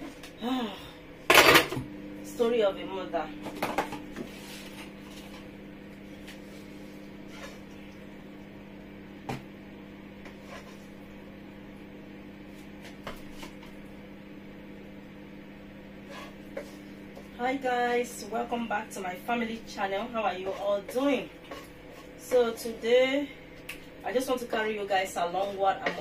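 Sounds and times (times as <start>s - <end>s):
steady low hum: 0.0s - 26.0s
spatula knocking and scraping: 7.3s - 7.7s, 10.2s - 10.9s, 12.5s - 13.8s, 16.0s - 17.3s, 20.1s - 22.8s, 25.3s - 26.0s.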